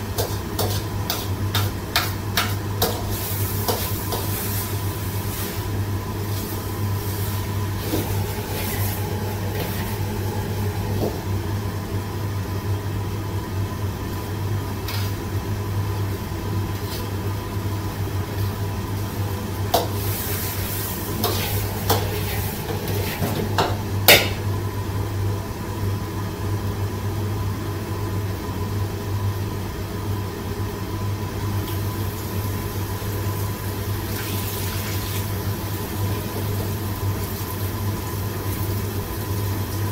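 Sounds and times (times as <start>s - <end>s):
vegetables sizzling in a wok: 0.0s - 39.9s
low hum: 7.4s - 12.9s
metal ladle knocking on pan: 23.6s - 24.4s.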